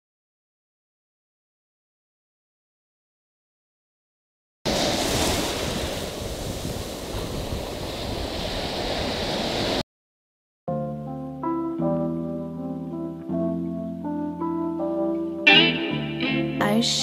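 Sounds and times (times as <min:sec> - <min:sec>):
surf washing over beach: 0:04.7 - 0:09.8
plucked string music: 0:11.4 - 0:17.0.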